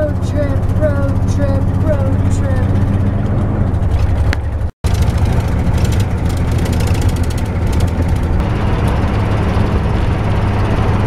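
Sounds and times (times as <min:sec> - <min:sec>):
low hum: 0:00.0 - 0:11.0
road and engine noise in cabin: 0:00.0 - 0:11.0.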